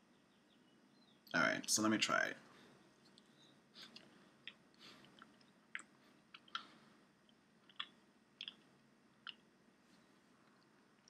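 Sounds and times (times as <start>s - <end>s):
wet chewing clicks and smacks: 3.1s - 9.5s.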